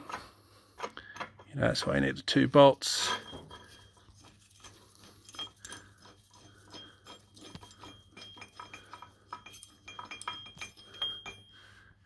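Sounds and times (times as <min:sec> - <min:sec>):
faint metal clinks and taps: 0:03.0 - 0:11.7.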